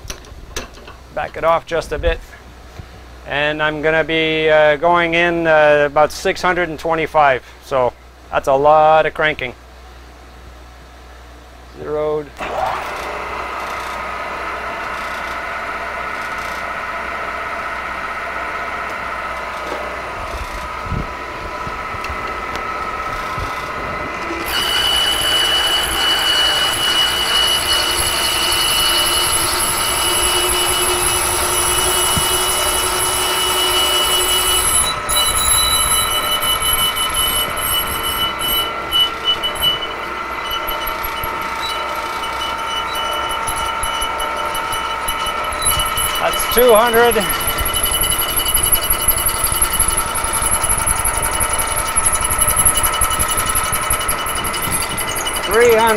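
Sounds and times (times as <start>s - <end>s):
milling machine drilling into steel: 12.4s - 20.8s, 21.6s - 55.9s
high-pitched cutting squeal: 22.6s - 55.9s.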